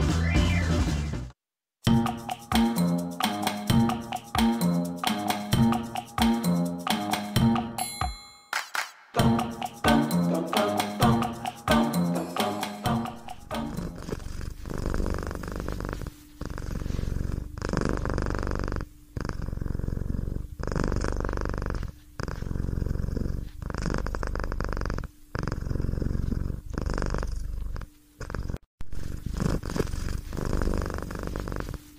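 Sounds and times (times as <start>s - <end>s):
cat purring: 13.3s - 31.9s.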